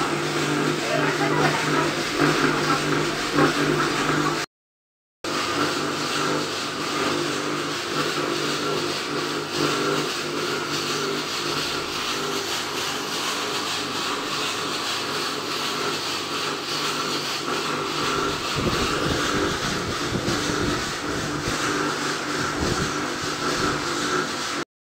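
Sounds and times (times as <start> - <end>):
machine hum: 0.0 - 4.5, 5.3 - 24.6
rushing motor and burner noise: 0.0 - 4.5, 5.3 - 24.7.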